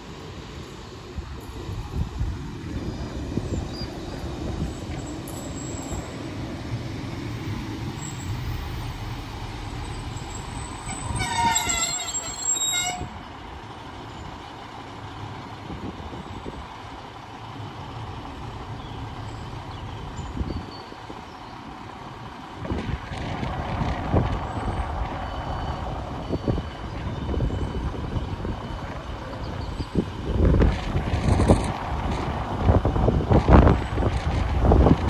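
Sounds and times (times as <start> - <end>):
train rumbling on rails: 0.0 - 35.0
train brakes squealing: 2.8 - 6.3, 7.1 - 13.2.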